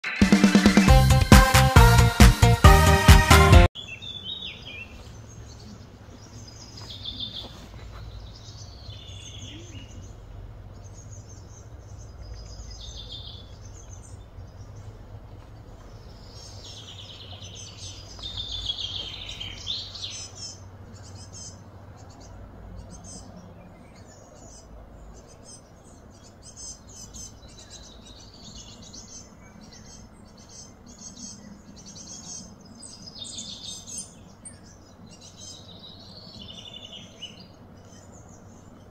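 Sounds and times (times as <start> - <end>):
birds chirping and calling: 3.8 - 38.9
low steady rumble: 8.0 - 28.2.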